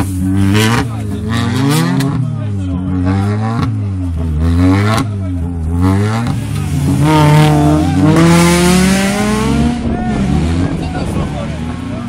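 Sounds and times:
rally car engine running hard: 0.0s - 12.0s.

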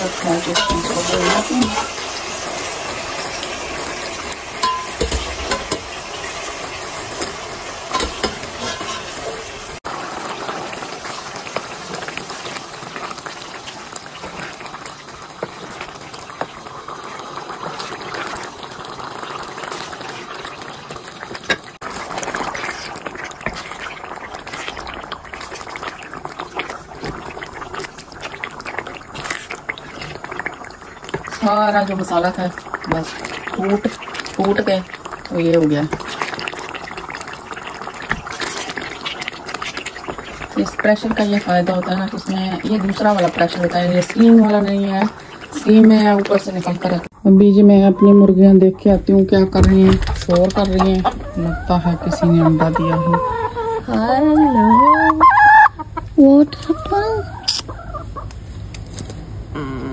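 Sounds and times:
food bubbling and sizzling in pan: 0.0s - 59.9s
spatula knocking and scraping pan: 0.1s - 2.0s, 4.6s - 6.0s, 7.2s - 9.7s.

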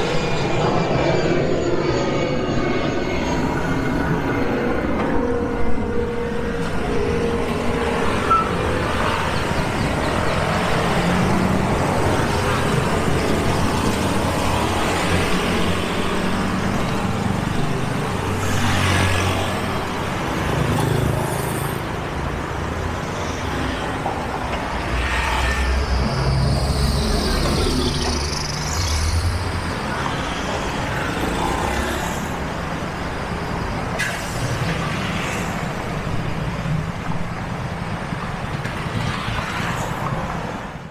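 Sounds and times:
road noise: 0.0s - 40.9s
vehicle engines passing: 5.7s - 37.3s.

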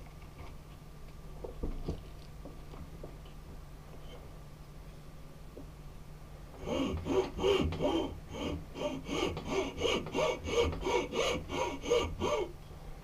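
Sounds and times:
file rasping on wood: 6.6s - 12.5s.

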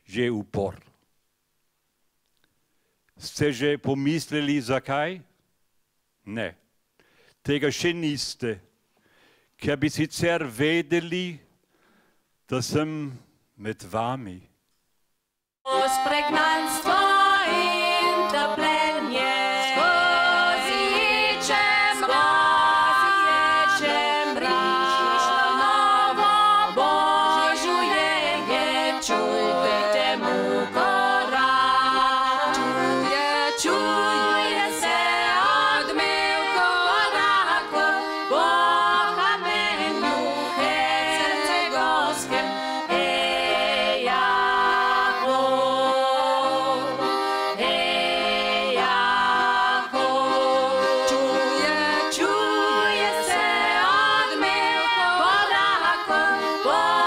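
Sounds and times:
women singing in harmony: 15.7s - 57.0s.

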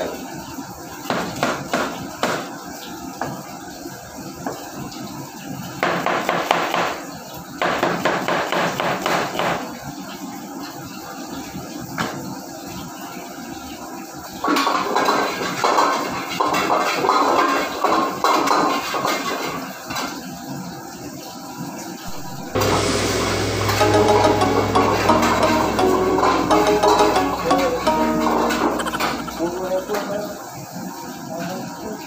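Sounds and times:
metal utensil working a wok: 22.1s - 29.5s.

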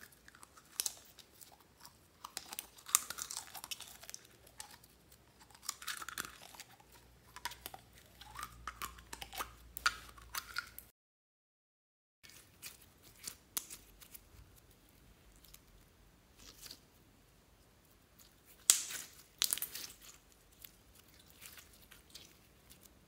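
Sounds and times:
slime crackling and popping: 0.1s - 1.6s, 2.2s - 10.8s, 18.2s - 23.0s
slime tearing: 0.1s - 10.8s, 18.2s - 23.0s.

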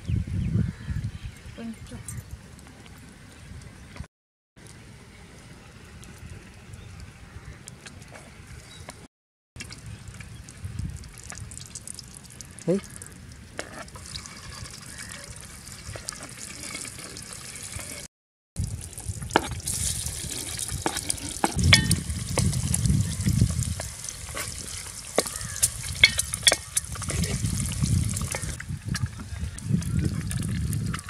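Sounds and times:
simmering pot and fire hiss: 9.6s - 31.0s
ladle clinking and scraping pot: 19.4s - 22.5s, 24.3s - 28.6s.

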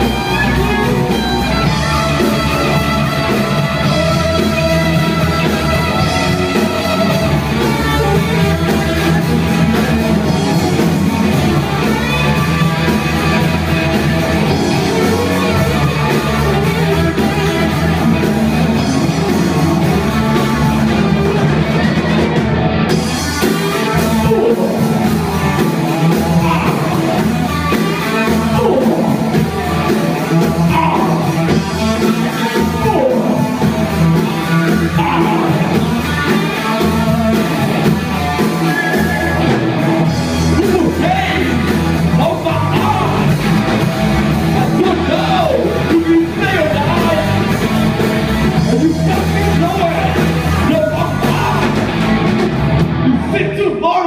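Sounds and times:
live rock band playing: 0.0s - 54.0s
singer's voice: 23.5s - 37.8s, 38.4s - 43.6s, 44.4s - 52.0s, 52.9s - 54.0s.

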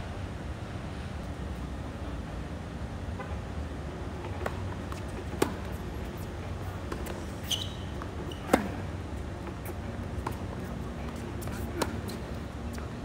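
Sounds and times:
racket hitting tennis ball: 4.2s - 6.2s, 6.9s - 8.9s, 9.6s - 12.4s
shoe squeak: 7.0s - 8.8s, 11.5s - 12.4s.

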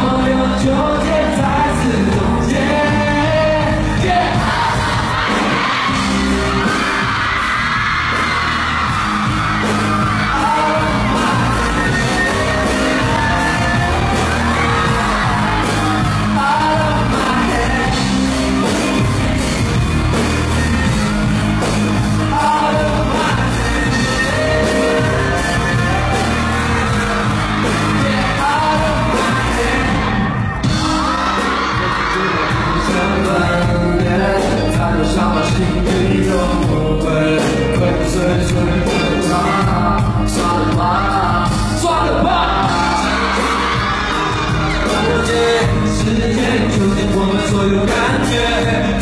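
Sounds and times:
man singing into a microphone: 0.0s - 4.8s, 10.2s - 12.0s, 16.3s - 18.3s, 22.3s - 25.0s, 27.8s - 30.4s, 31.6s - 43.1s, 44.8s - 49.0s
audience yelling and whooping: 0.0s - 36.7s, 37.4s - 49.0s
live pop music with heavy bass: 0.0s - 49.0s.

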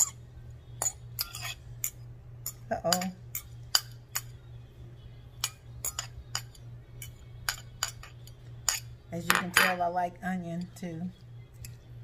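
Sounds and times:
low steady hum: 0.0s - 12.0s
fork clinking against glass bowl: 0.8s - 4.4s, 5.4s - 9.0s.

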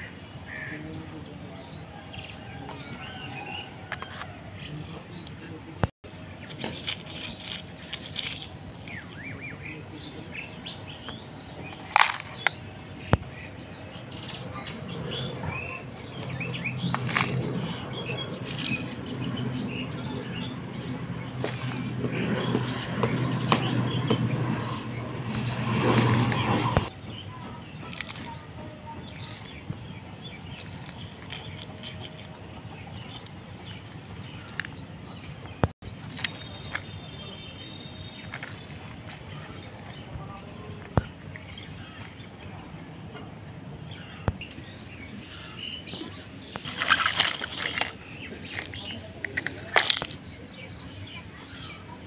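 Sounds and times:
outdoor background noise: 0.0s - 52.0s
small birds chirping: 0.0s - 52.0s
plastic toy rattle and clicks: 6.8s - 8.5s, 46.6s - 50.2s.

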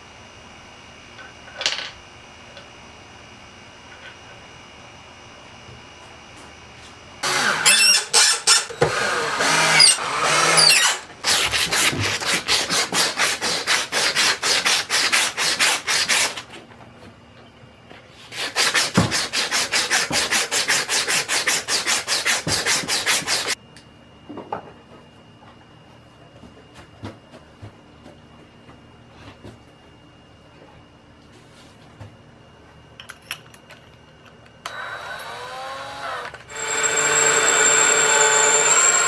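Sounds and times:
squeaky scraping: 7.4s - 8.7s, 9.7s - 11.0s
hand rubbing sandpaper disc: 11.2s - 16.5s, 18.3s - 23.6s.

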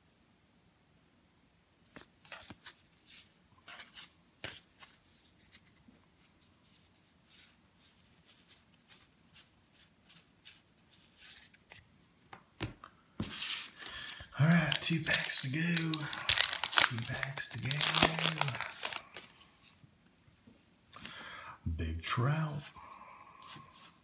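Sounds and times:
cards flicking and scraping: 12.6s - 19.7s.

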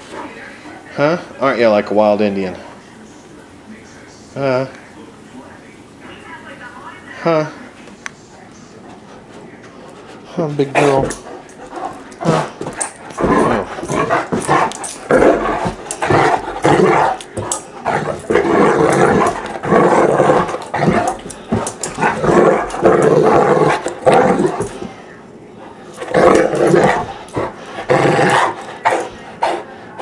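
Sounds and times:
dog growling: 10.2s - 25.0s, 25.8s - 30.0s.

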